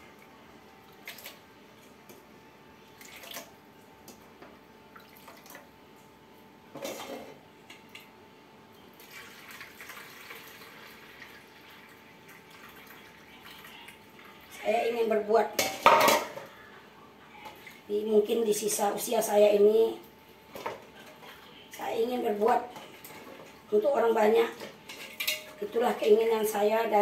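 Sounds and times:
faint water sounds: 8.8 - 15.3
bowls and utensils clinking: 24.5 - 26.2.

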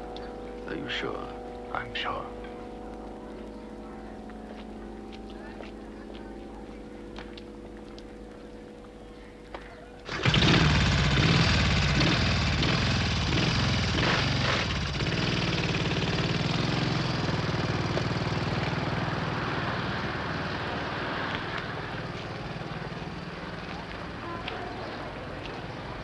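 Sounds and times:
engine pulsing steadily: 10.0 - 26.0.

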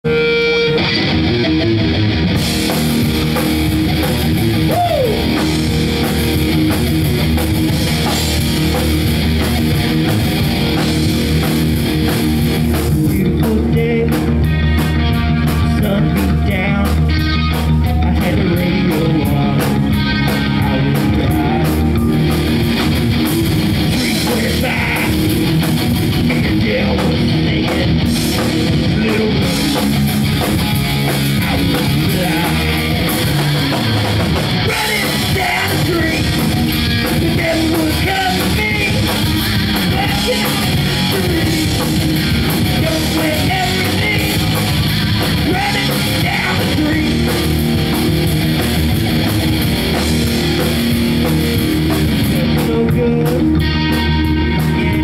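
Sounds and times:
live rock band playing: 0.0 - 55.0
man singing into a microphone: 12.9 - 14.8, 15.5 - 17.2, 17.9 - 22.1, 23.9 - 25.4, 26.2 - 29.9, 31.4 - 33.0, 34.6 - 42.0, 42.6 - 44.7, 45.4 - 47.4, 52.4 - 53.9, 54.5 - 55.0.

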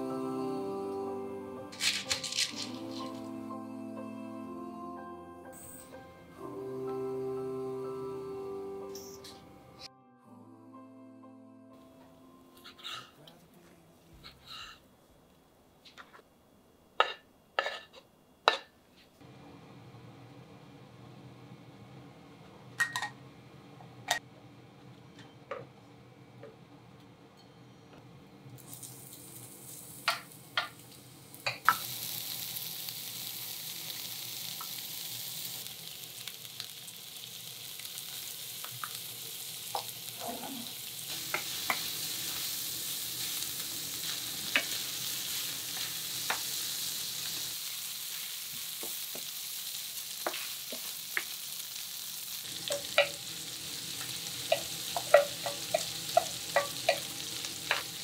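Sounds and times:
food sizzling in frying pan: 1.7 - 3.3, 28.6 - 58.0.

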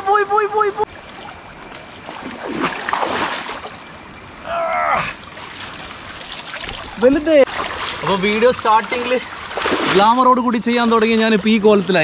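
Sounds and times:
water rushing: 0.8 - 12.0
river water splashing: 0.9 - 12.0.

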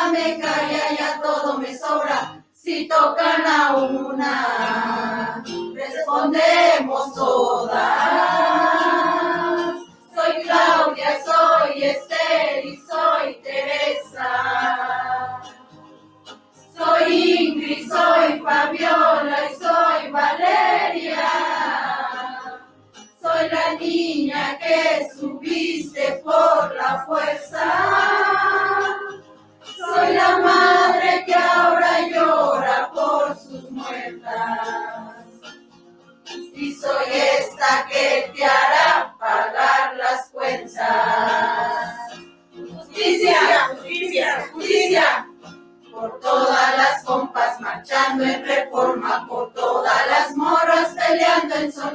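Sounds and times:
group of voices singing: 0.0 - 15.6, 16.7 - 35.4, 36.6 - 51.9.

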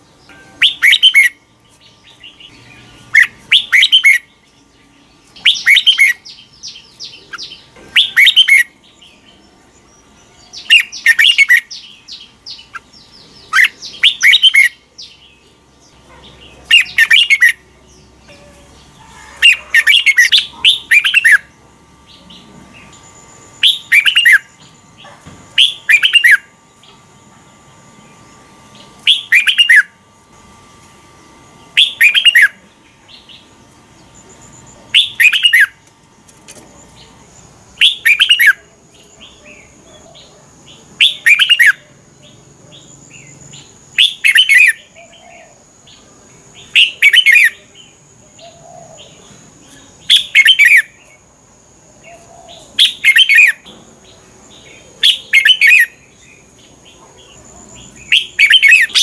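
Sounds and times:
bird singing whistled phrase: 0.6 - 1.4, 3.2 - 4.3, 29.1 - 29.9.

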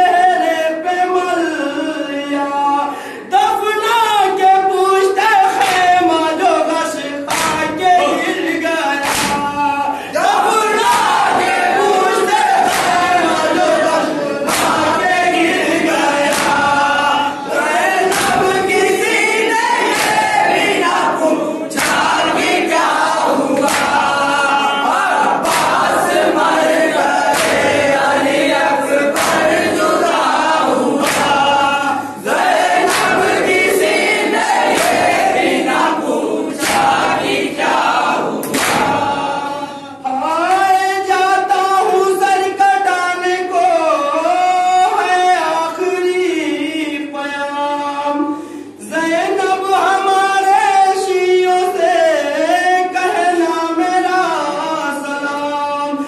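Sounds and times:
person chanting into a microphone: 0.0 - 35.0, 35.6 - 56.0
men chanting a lament: 0.0 - 56.0
chest-beating slaps: 7.3 - 7.8, 9.0 - 9.7, 10.4 - 13.7, 14.4 - 17.0, 17.6 - 19.2, 19.8 - 24.3, 25.4 - 28.4, 29.1 - 35.8, 36.5 - 39.3.

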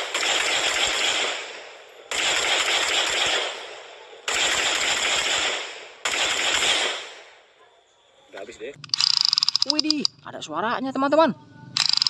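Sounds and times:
automatic rifle fire bursts: 0.0 - 7.3, 11.8 - 12.0.

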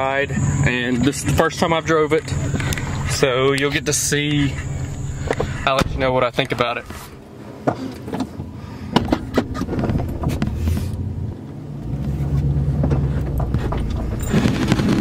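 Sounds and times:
engine running: 0.0 - 15.0
clicks and knocks in cab: 7.6 - 11.2, 12.4 - 15.0.

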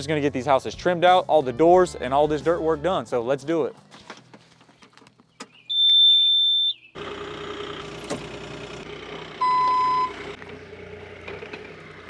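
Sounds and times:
diesel engine running: 6.9 - 12.0
high-pitched electronic beep: 9.4 - 10.2.

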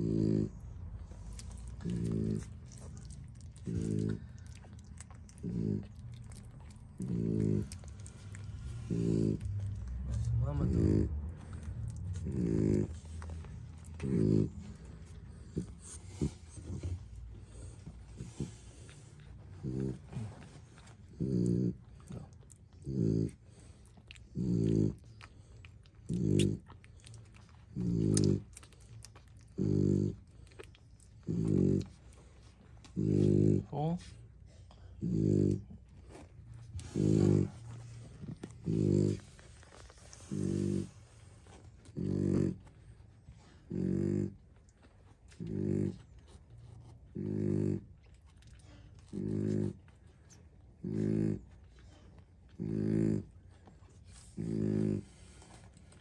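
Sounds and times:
dog breathing with low groan: 0.0 - 56.0
puppies suckling wet clicks: 0.7 - 10.4, 11.1 - 16.2, 17.0 - 33.0, 37.5 - 40.3, 44.3 - 47.2, 47.8 - 50.8.

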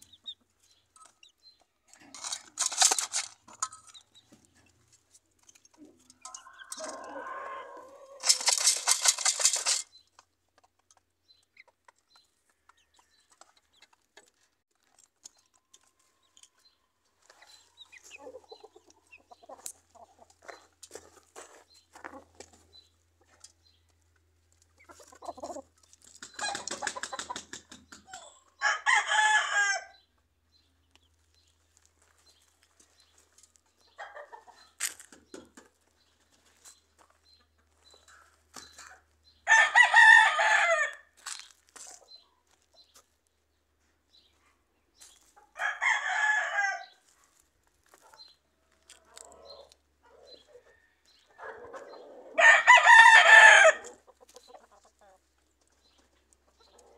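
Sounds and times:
chickens clucking: 0.0 - 28.6, 30.0 - 39.4, 41.2 - 45.6, 47.0 - 56.9
chickens scratching: 0.1 - 28.5, 30.9 - 39.2, 39.8 - 45.5, 46.8 - 56.9
rooster crowing: 6.3 - 8.4, 28.6 - 30.0, 39.5 - 41.0, 45.6 - 47.0, 52.4 - 53.9
wings flapping: 26.2 - 27.9.

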